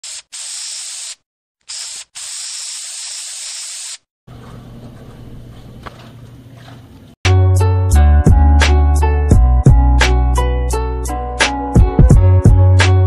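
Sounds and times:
spray can hissing: 0:00.0 - 0:04.1.

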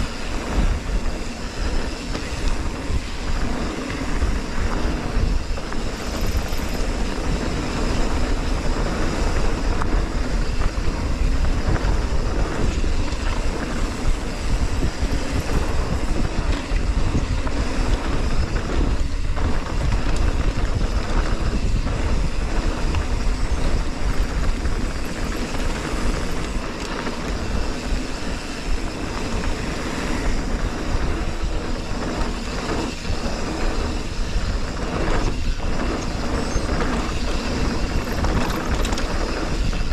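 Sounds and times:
wind rushing over microphone: 0:00.0 - 0:39.9
bike knocks and rattles: 0:34.8 - 0:39.9.

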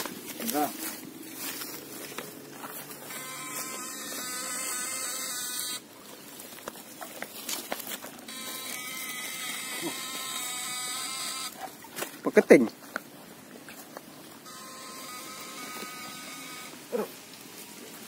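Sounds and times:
electric buzz: 0:02.9 - 0:05.9, 0:08.3 - 0:11.6, 0:14.4 - 0:17.0.

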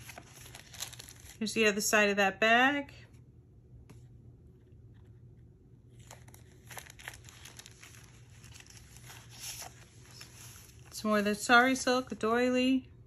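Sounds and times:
paper rustling and crinkling: 0:00.0 - 0:01.4, 0:05.9 - 0:12.2.

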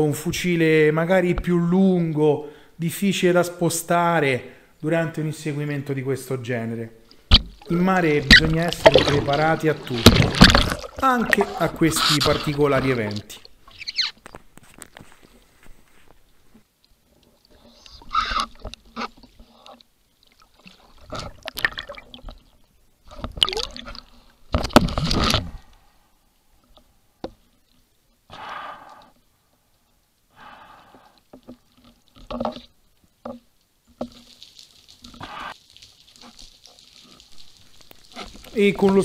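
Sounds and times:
water splashing and bubbling: 0:07.1 - 0:14.2, 0:16.9 - 0:25.7, 0:30.9 - 0:39.0.

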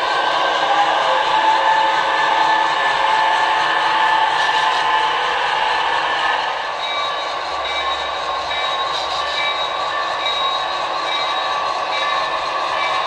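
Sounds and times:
model train diesel engine sound: 0:00.0 - 0:13.0.

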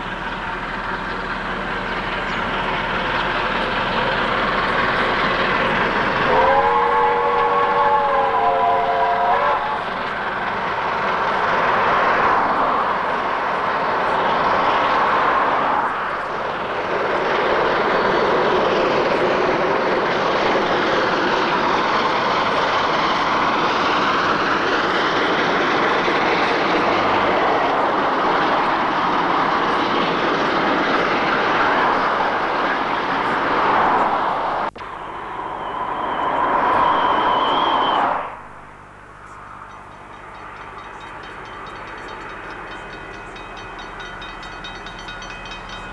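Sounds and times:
distant train: 0:00.0 - 0:45.9
train rushing past: 0:00.0 - 0:45.9
steam locomotive whistle: 0:06.2 - 0:10.1, 0:34.8 - 0:38.6.

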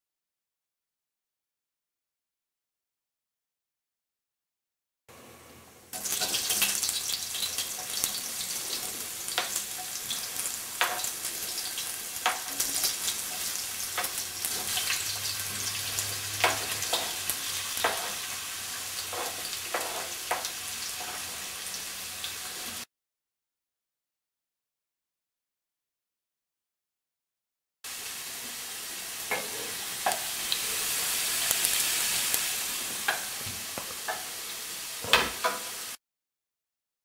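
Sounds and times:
potatoes sizzling in hot oil: 0:05.9 - 0:22.9, 0:27.9 - 0:36.0
oil crackling and popping: 0:06.0 - 0:21.2, 0:29.3 - 0:34.3.

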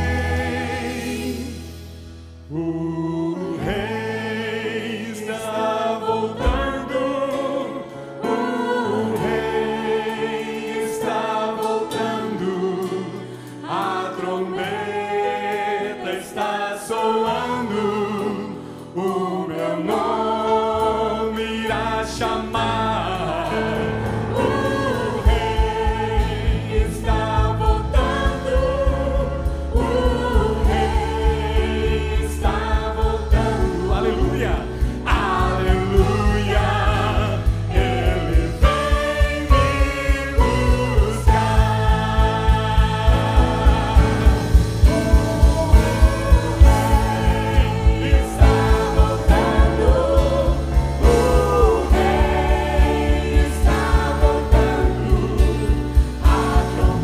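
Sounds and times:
bass: 0:00.0 - 0:57.0
keyboard: 0:00.0 - 0:57.0
singers in harmony: 0:00.0 - 0:57.0
low drum beat: 0:24.6 - 0:57.0.

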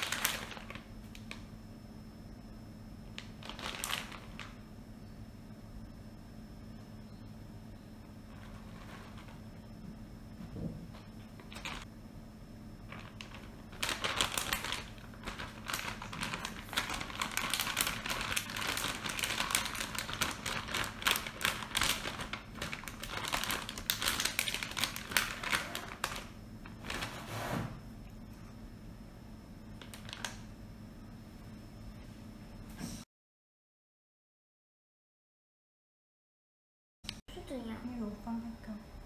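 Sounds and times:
rapid irregular clicking and crackling: 0:12.9 - 0:26.3.

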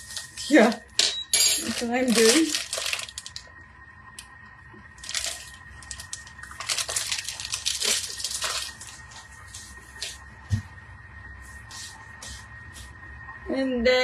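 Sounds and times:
rustling and crunching handling: 0:01.6 - 0:03.5, 0:05.0 - 0:10.2.

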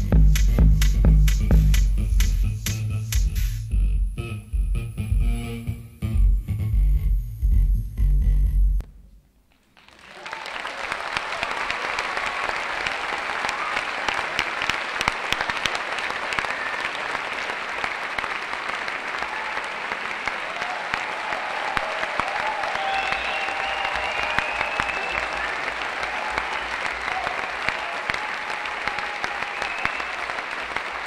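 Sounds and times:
audience applauding: 0:09.6 - 0:31.0.

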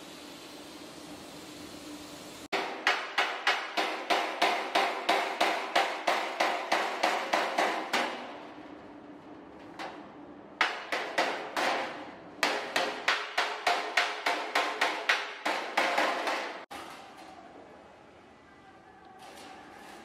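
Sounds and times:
spray gun hissing: 0:00.0 - 0:02.5
hammer striking steel sheet: 0:02.5 - 0:08.4.

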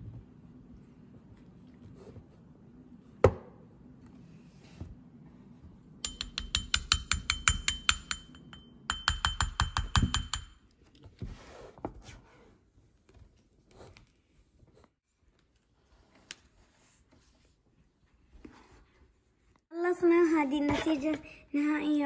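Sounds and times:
plastic spatula tapping dish: 0:06.0 - 0:10.6.

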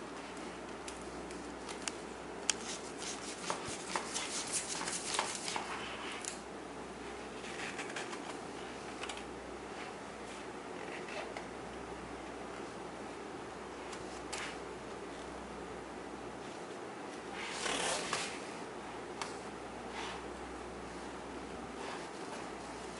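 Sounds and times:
room hiss: 0:00.0 - 0:07.6, 0:08.4 - 0:22.9
stiff book pages rustling: 0:02.6 - 0:06.4.

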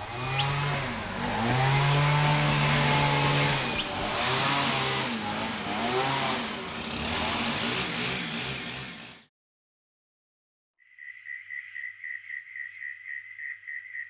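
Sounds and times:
leaf blower engine revving: 0:00.0 - 0:09.3.

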